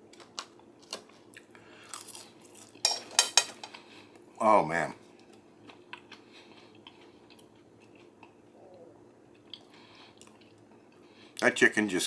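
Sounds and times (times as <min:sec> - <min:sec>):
person chewing: 0:00.1 - 0:02.8, 0:05.2 - 0:11.4.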